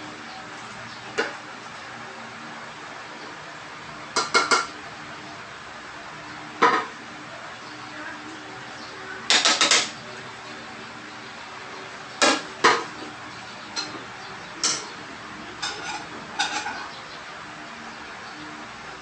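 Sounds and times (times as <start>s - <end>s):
dishes clinking: 4.2s - 4.8s, 6.6s - 7.0s, 12.2s - 13.1s, 13.7s - 15.0s, 15.6s - 17.0s.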